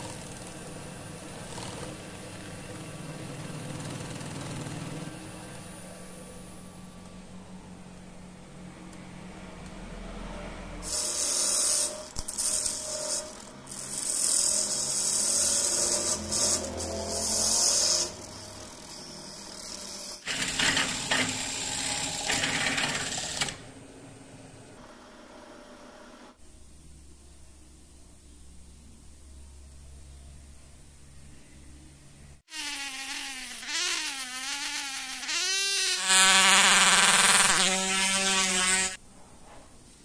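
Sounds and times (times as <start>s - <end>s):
lathe tool scraping wood: 10.8s - 23.6s.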